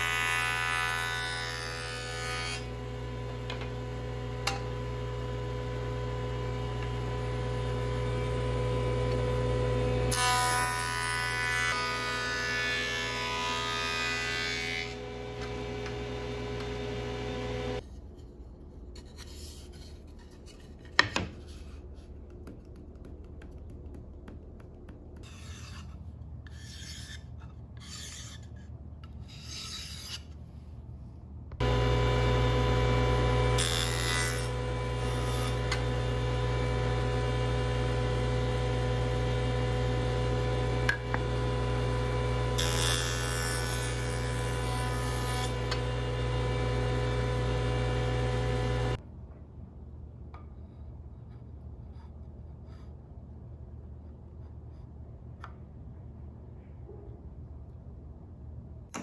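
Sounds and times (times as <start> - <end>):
jointer motor humming: 15.0 - 17.8, 31.6 - 42.6, 45.5 - 49.0
board rubbing: 19.0 - 28.6.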